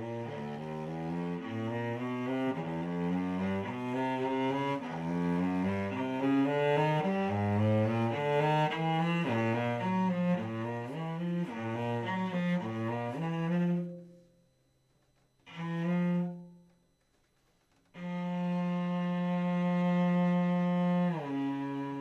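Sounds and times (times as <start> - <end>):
solo cello bowed: 0.0 - 17.0, 17.7 - 22.0.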